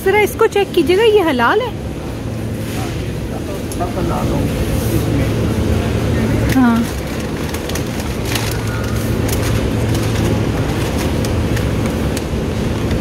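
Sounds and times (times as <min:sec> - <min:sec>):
freezer hum: 0:00.0 - 0:13.0
plastic food pack crinkling: 0:06.9 - 0:12.3.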